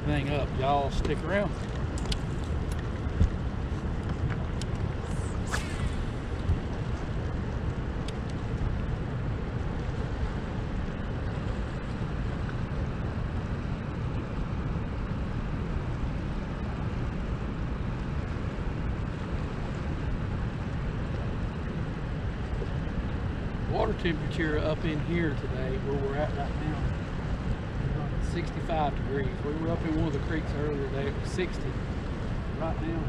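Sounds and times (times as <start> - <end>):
fast-flowing water: 0.0 - 33.0
wind rumbling: 0.0 - 33.0.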